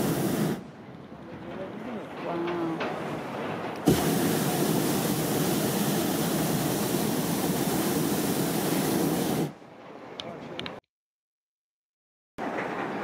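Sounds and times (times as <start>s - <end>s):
propane burner roaring: 0.0s - 9.6s.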